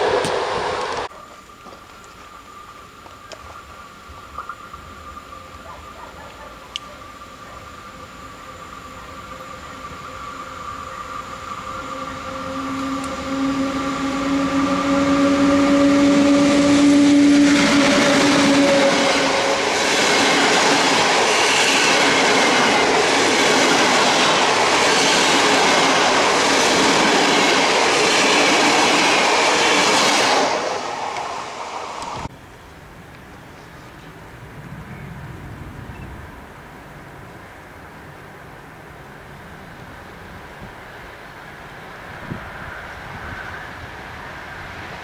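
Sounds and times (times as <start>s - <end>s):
electric train whine: 0.0s - 45.0s
train wheels rumbling and clattering: 12.2s - 32.3s.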